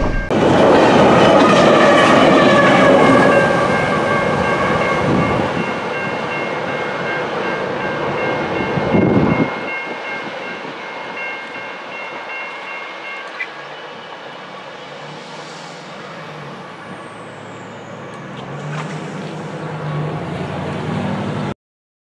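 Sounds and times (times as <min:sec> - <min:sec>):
high ringing tone: 0:00.0 - 0:00.4, 0:03.0 - 0:14.7
freight train rumbling past: 0:00.0 - 0:21.5.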